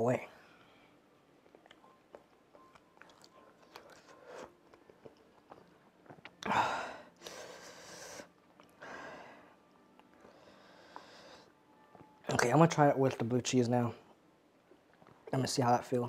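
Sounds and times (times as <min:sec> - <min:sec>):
man chewing: 0:01.4 - 0:06.6
hissing breath: 0:06.5 - 0:09.6, 0:10.2 - 0:11.6.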